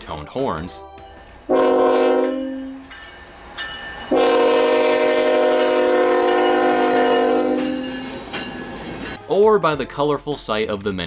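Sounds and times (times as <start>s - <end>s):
locomotive air horn blasts: 1.5s - 2.5s, 4.1s - 7.8s.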